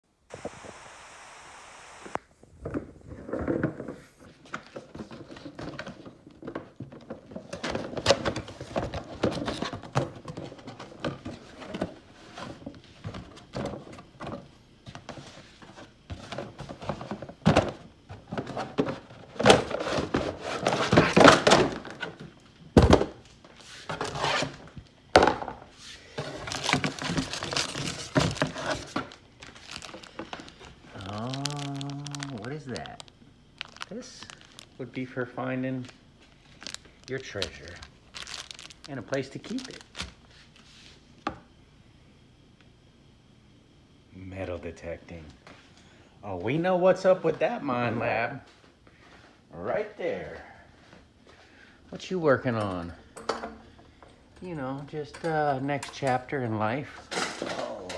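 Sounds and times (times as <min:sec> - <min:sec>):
steady hiss: 0:00.0 - 0:02.5
plastic pans thunking and knocking: 0:16.1 - 0:23.2, 0:25.1 - 0:25.6.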